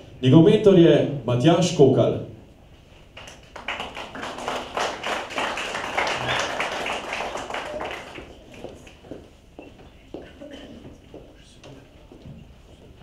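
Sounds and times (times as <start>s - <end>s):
small audience applauding: 3.1s - 9.2s.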